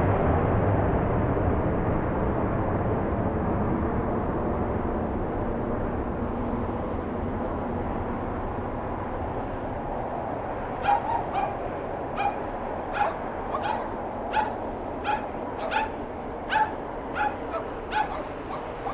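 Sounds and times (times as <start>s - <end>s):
distant jet engines rumbling: 0.0s - 18.9s
dog barking: 10.8s - 18.9s.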